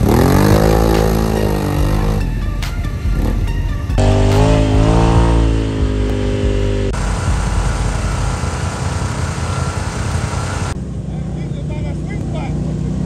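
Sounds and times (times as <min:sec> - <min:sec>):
off-road vehicle engine revving: 0:00.0 - 0:13.0.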